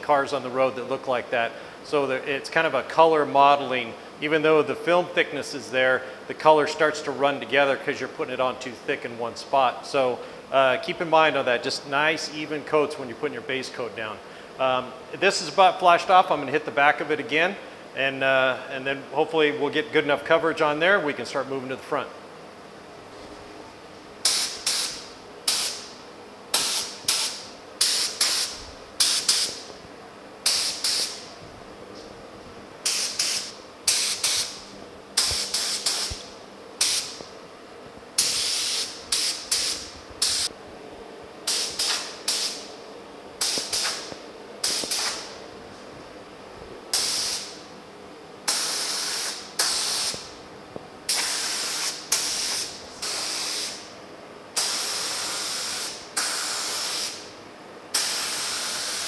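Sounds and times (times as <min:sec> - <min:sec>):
paint spray gun hissing: 0:24.2 - 0:29.7, 0:30.4 - 0:31.3, 0:32.8 - 0:34.6, 0:35.2 - 0:37.2, 0:38.2 - 0:40.5, 0:41.4 - 0:42.7, 0:43.4 - 0:45.4, 0:46.9 - 0:47.6, 0:48.5 - 0:50.3, 0:51.1 - 0:53.9, 0:54.6 - 0:57.3, 0:57.9 - 0:59.0.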